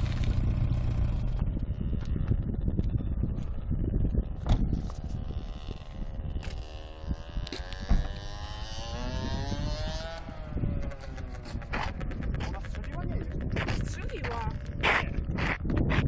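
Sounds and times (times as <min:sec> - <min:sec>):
low rumbling noise: 0:00.0 - 0:16.0.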